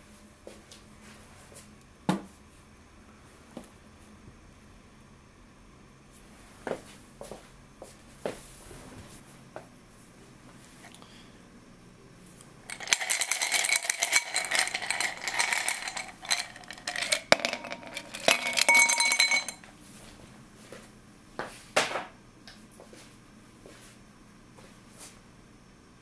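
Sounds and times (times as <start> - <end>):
ice cubes clinking in glass: 12.7 - 19.6.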